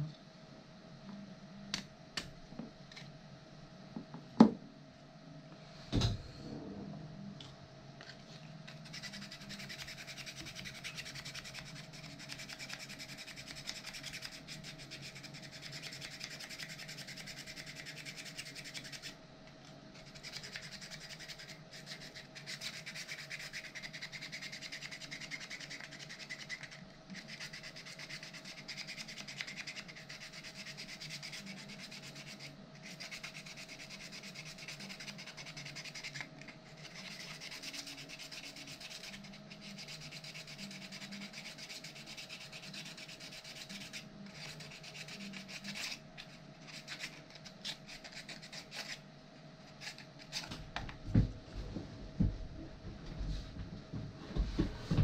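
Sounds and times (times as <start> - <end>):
hand sanding plastic: 8.7 - 19.2, 20.0 - 49.0.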